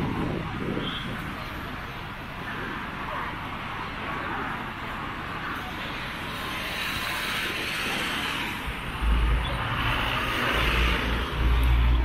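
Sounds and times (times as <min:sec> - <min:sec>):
cars passing hiss: 0:05.6 - 0:12.0.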